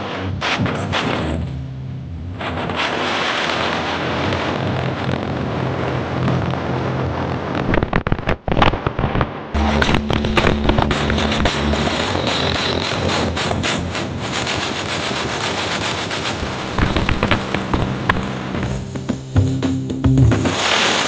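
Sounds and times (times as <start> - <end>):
crackling noise: 0.0 - 21.0
sharp pops: 7.6 - 11.6, 16.0 - 18.3.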